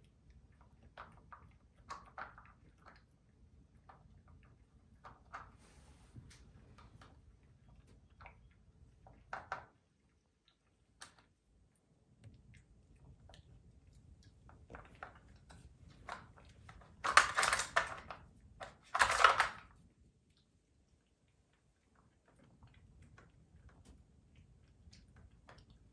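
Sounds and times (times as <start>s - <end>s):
puppy pushing plastic puzzle toy: 14.5s - 19.8s.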